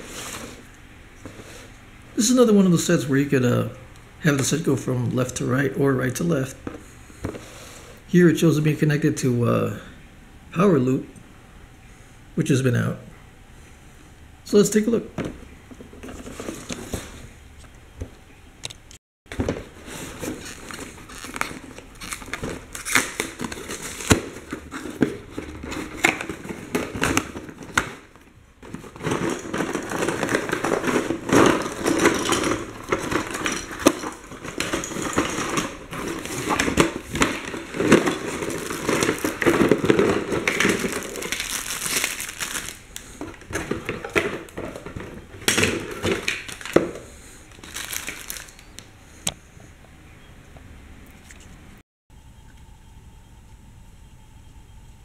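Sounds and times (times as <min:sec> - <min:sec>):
plastic packaging crinkling: 0:19.3 - 0:48.9
cardboard box being opened: 0:28.6 - 0:47.0.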